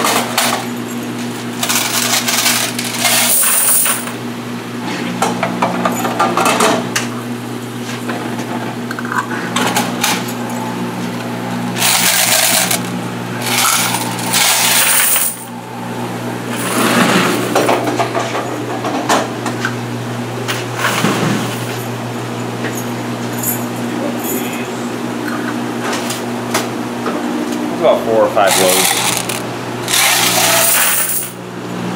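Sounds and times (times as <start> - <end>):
steady low hum: 0.5 - 31.9
coin box clicks and rattles: 1.6 - 4.0, 11.8 - 12.8, 28.5 - 31.4
coins jingling into bucket: 1.6 - 4.1, 11.8 - 12.8, 13.5 - 15.5, 28.5 - 31.4.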